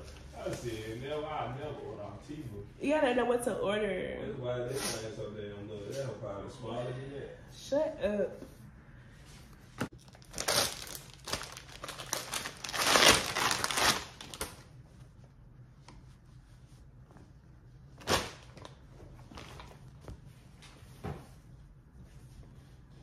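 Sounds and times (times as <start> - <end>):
plastic packaging crinkling: 9.9 - 14.7.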